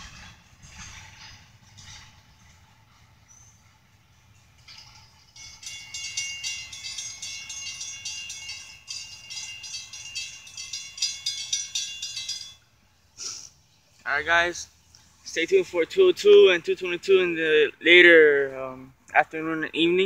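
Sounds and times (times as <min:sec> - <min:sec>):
crossing bells ringing rapidly: 0:04.5 - 0:13.0.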